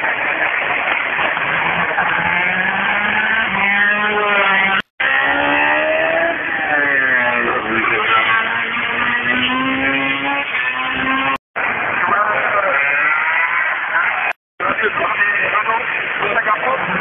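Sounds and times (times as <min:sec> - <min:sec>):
race car engines at full throttle: 0:00.0 - 0:17.0.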